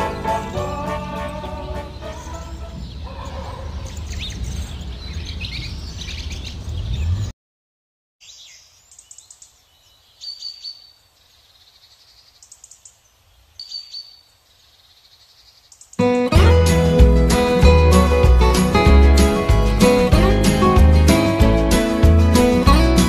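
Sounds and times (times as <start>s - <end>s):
outdoor background noise: 0.0s - 7.3s, 8.2s - 16.2s
small birds chirping: 1.4s - 7.3s, 8.2s - 16.1s.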